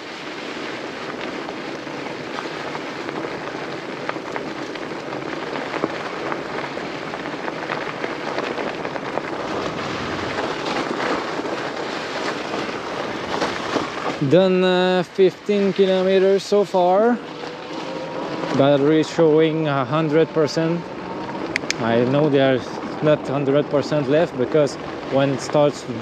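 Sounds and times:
bike tires crunching over stones: 0:00.0 - 0:26.0.

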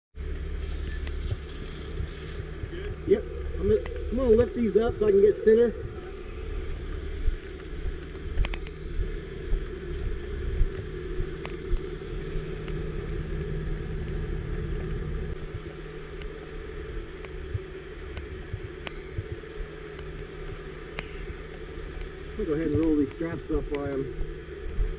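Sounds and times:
sharp clicks: 0:07.5 - 0:08.8.

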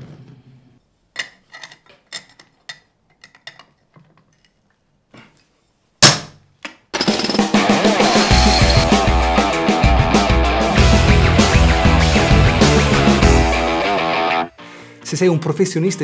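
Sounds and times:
rock music: 0:07.3 - 0:14.7.

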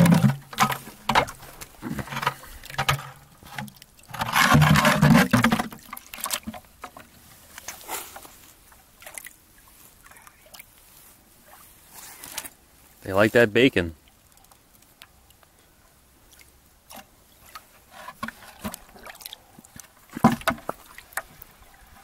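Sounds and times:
water splashing into bucket: 0:00.0 - 0:10.7, 0:16.3 - 0:22.0.

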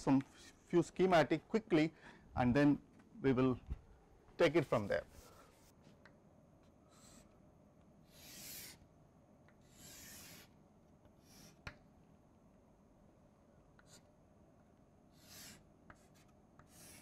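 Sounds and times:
chalk scraping on blackboard: 0:08.0 - 0:08.8, 0:09.6 - 0:10.6, 0:11.2 - 0:11.7, 0:15.1 - 0:17.0.

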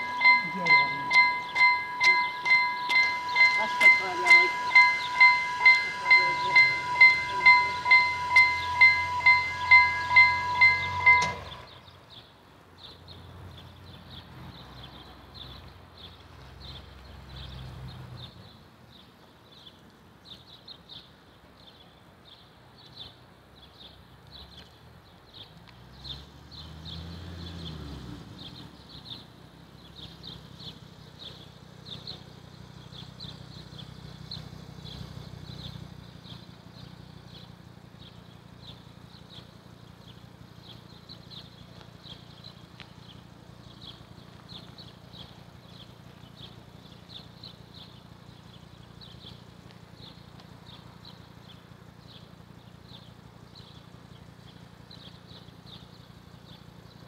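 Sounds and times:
level crossing bell ringing: 0:00.0 - 0:11.7.

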